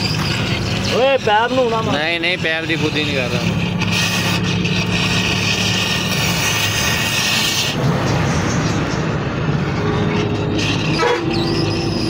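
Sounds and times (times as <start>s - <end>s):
cutting torch hissing: 0.0s - 9.1s.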